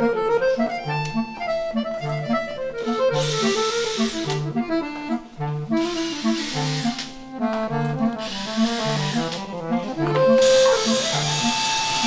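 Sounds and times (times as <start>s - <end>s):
background music: 0.0s - 12.0s
hissing burst: 2.8s - 4.3s, 5.8s - 7.2s, 8.2s - 12.0s.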